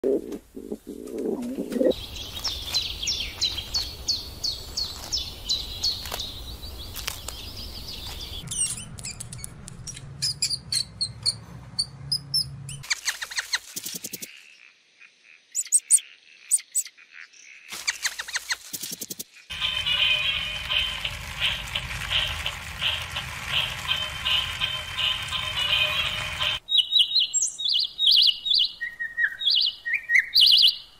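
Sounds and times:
pigeon cooing: 0.0 - 2.0
wing flaps: 12.8 - 14.3, 17.7 - 19.2
quick high bird chirps: 15.5 - 16.9.

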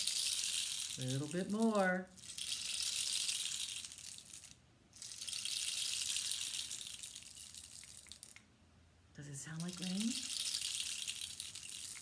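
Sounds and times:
rain stick hissing: 0.0 - 8.4, 9.5 - 12.0.

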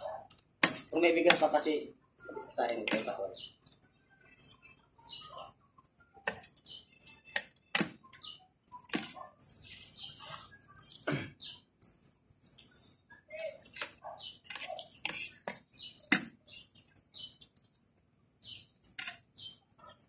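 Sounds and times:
spoon scraping on plate: 2.7 - 3.8, 6.2 - 17.4.

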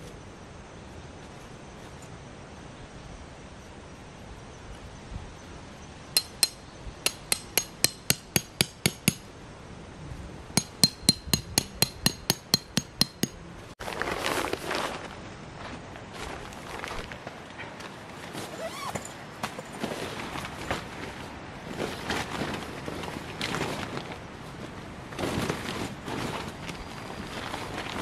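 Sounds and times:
tent peg being hammered: 6.2 - 9.3, 10.6 - 13.4.

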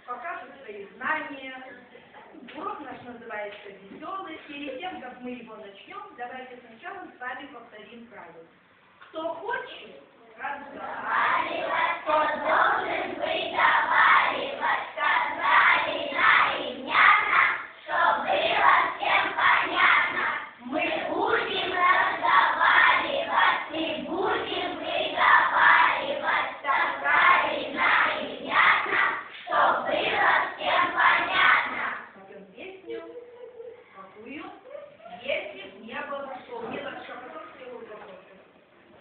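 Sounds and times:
children chanting in unison: 10.8 - 32.1.

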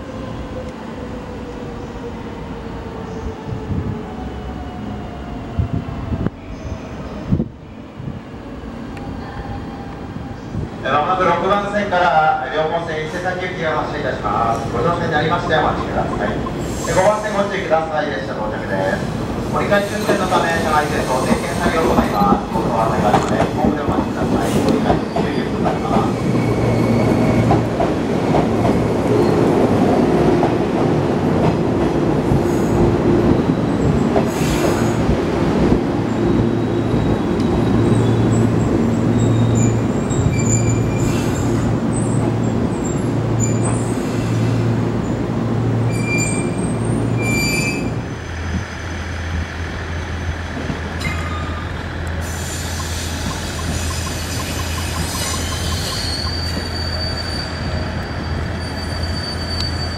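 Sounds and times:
train rumbling: 0.0 - 59.9
high-pitched wheel squeals: 45.9 - 47.9, 51.0 - 59.9.

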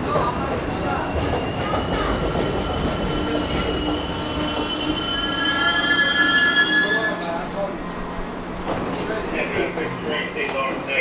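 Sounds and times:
train wheels rumbling on rails: 0.0 - 6.0.

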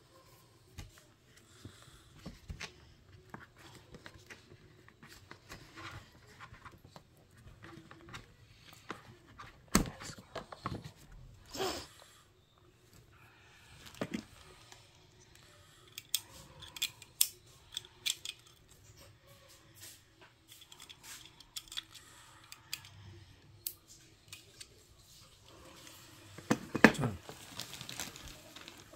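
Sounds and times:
plastic packaging handling noises: 23.8 - 28.9.

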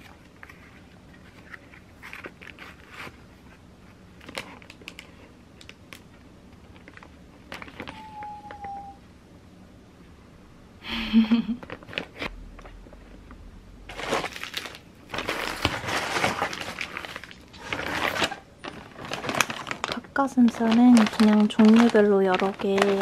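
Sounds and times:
plastic packaging crinkling: 4.2 - 9.0, 11.6 - 13.3, 13.9 - 23.0.

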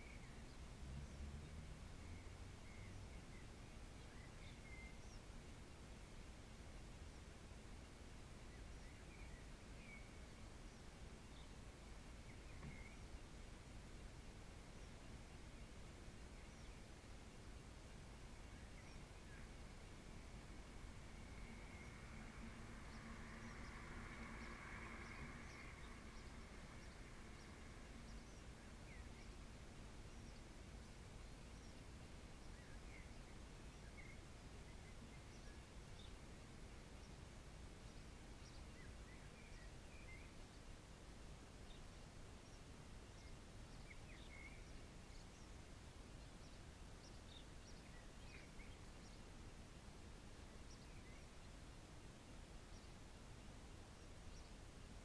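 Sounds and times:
faint high bird chirps: 0.0 - 40.9, 41.6 - 49.6
weak low hum: 0.0 - 42.1
quiet background hiss: 0.0 - 55.0
steady low background noise: 0.0 - 55.0.

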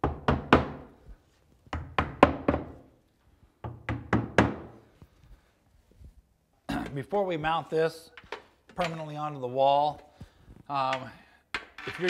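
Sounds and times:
hammer tapping wall anchors: 0.0 - 0.9, 3.6 - 4.8.

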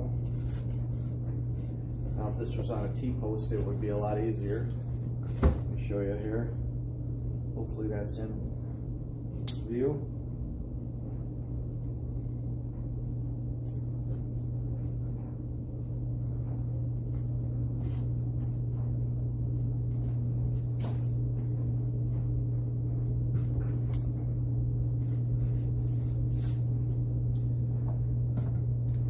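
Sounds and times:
low machine hum: 0.0 - 29.0.

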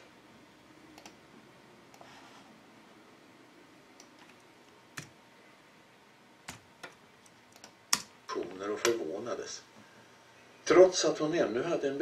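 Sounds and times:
faint room hiss: 0.0 - 12.0
sharp computer clicks: 6.5 - 8.1.

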